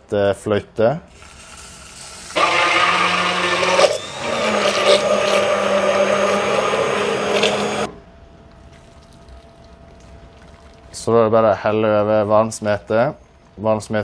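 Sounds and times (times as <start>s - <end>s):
milk pouring: 1.2s - 7.9s
immersion blender running: 2.2s - 8.0s.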